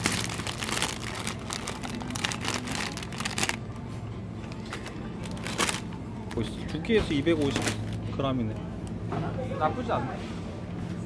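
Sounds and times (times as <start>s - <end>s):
plastic packets crinkling: 0.0s - 3.8s, 4.4s - 8.1s
low steady hum: 0.0s - 11.0s.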